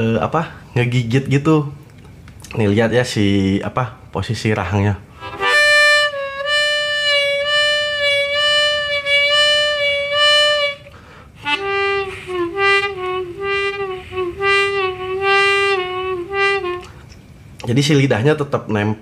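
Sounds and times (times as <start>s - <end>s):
harmonica notes with bends: 5.1s - 17.2s.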